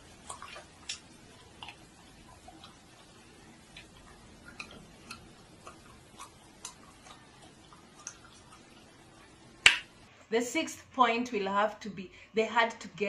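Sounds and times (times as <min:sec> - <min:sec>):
faint regular ticking: 0:00.1 - 0:09.6.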